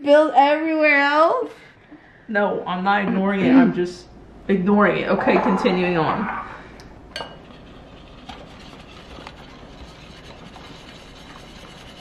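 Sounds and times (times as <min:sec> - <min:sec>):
whisk scraping and sloshing: 0:07.2 - 0:12.0.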